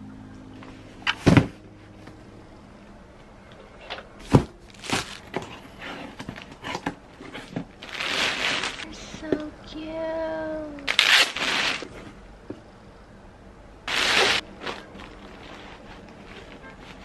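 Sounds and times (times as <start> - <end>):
rustle or crinkle: 4.7 - 8.9, 10.9 - 12.1, 13.9 - 17.0.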